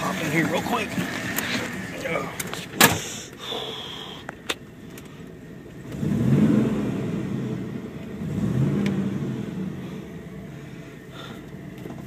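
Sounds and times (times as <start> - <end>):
engine idling: 0.0 - 12.0
engine revving: 5.8 - 12.0.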